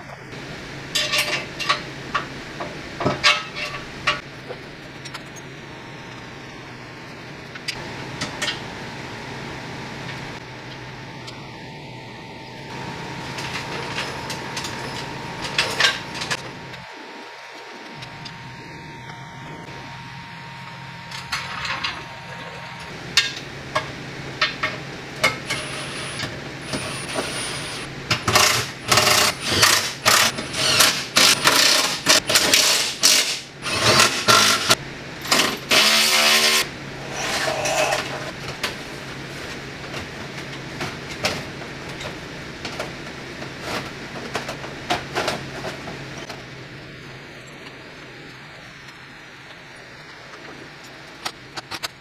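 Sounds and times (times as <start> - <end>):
tools and metal parts clanking: 0.9 - 1.8, 13.4 - 16.4.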